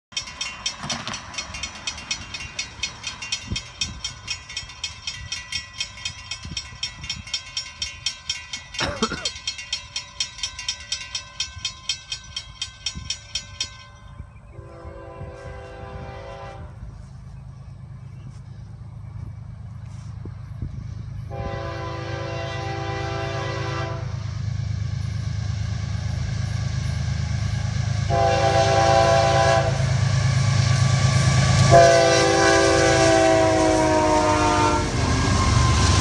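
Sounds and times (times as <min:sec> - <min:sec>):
railroad crossing bell ringing: 0:00.0 - 0:36.0
diesel locomotive rumble: 0:00.1 - 0:36.0
distant locomotive horn: 0:14.4 - 0:17.2, 0:21.1 - 0:24.4, 0:26.8 - 0:36.0.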